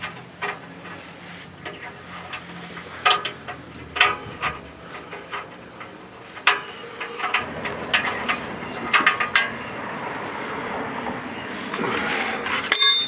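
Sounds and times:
metal tools clinking on exhaust pipe: 0:00.0 - 0:09.8, 0:12.5 - 0:13.0.

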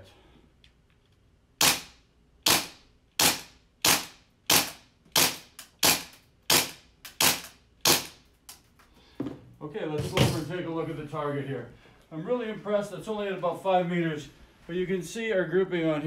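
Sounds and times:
airsoft pistol shots: 0:01.6 - 0:08.2.

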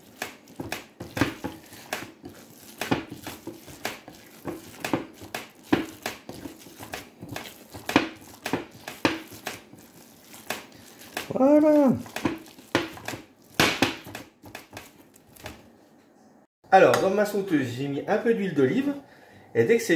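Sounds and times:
hands kneading raw meat in bowl: 0:00.0 - 0:15.8.

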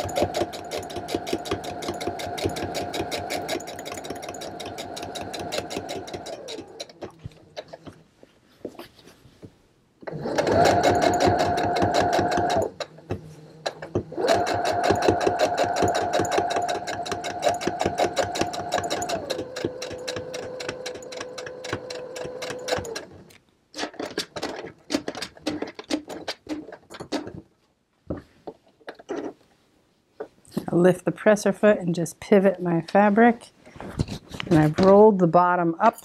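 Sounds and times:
sewing machine stitching: 0:00.0 - 0:07.8, 0:10.0 - 0:23.2.

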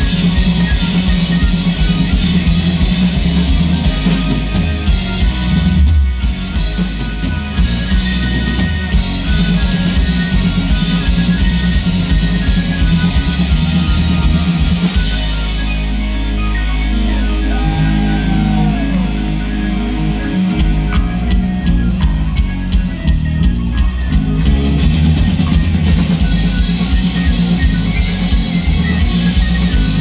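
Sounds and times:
live rock band playing: 0:00.0 - 0:30.0.

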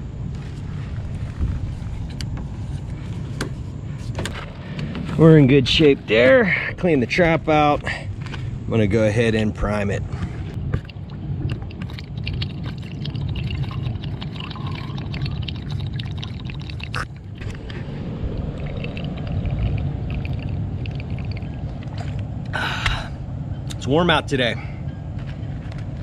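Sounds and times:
water pouring into a pipe: 0:10.8 - 0:17.2, 0:18.2 - 0:22.2.

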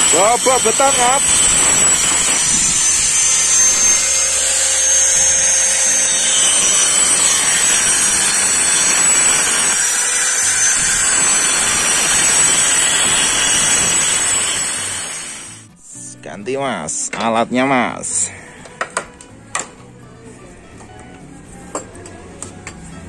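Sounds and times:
angle grinder cutting concrete: 0:00.0 - 0:15.7.

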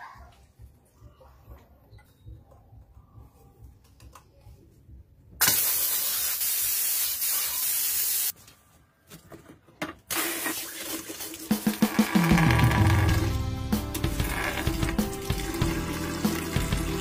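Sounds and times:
water jetting onto concrete: 0:05.4 - 0:08.3, 0:10.1 - 0:12.4, 0:13.9 - 0:17.0.

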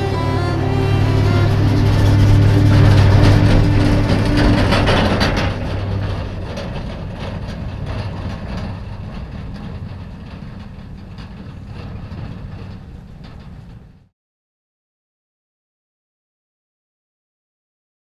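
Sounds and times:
truck engine: 0:00.0 - 0:13.9
trailer rattling: 0:00.0 - 0:14.0.

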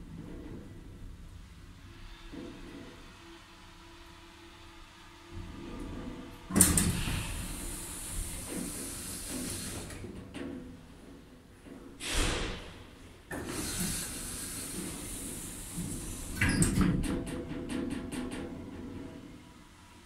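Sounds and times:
sliding doors whoosh: 0:12.0 - 0:16.8.

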